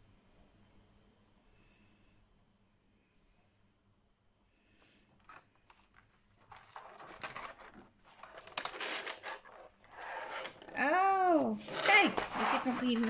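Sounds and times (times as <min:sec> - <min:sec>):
plastic crinkling and rattling: 0:05.2 - 0:13.0.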